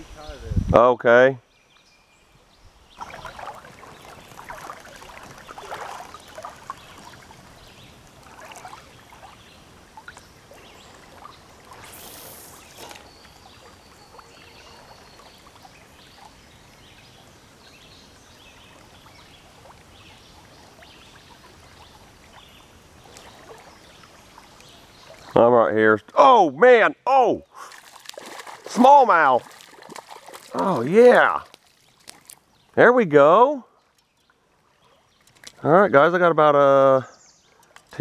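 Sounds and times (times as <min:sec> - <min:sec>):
faint flowing river water: 0:00.0 - 0:38.0
water splashing and trickling: 0:01.7 - 0:38.0
brief rush of noise: 0:11.8 - 0:13.0.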